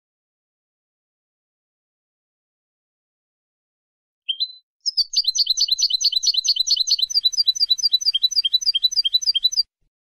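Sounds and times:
goldfinch singing: 4.3s - 9.7s.

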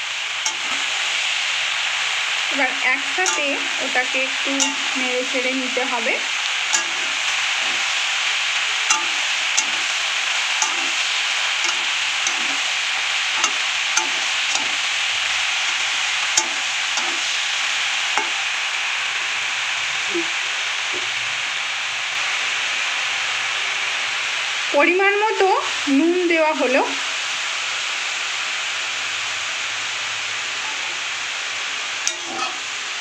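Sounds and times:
vegetables sizzling in oil: 0.0s - 33.0s
metal spatula scraping a pan: 0.4s - 1.1s, 2.6s - 18.5s, 30.6s - 31.1s, 32.0s - 33.0s.

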